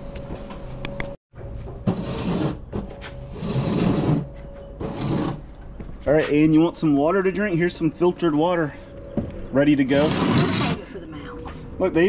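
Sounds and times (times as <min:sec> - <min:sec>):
household items scraping and rustling: 0:01.9 - 0:05.6, 0:09.9 - 0:11.7.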